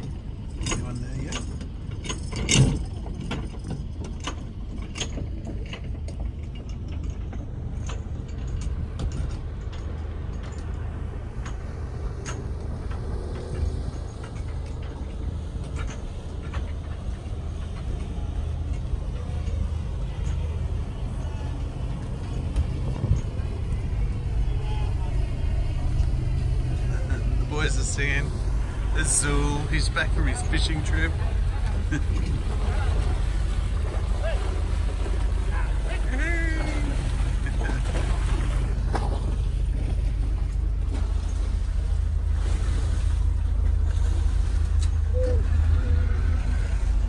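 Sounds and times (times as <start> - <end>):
boat machinery low hum: 0.0 - 47.0.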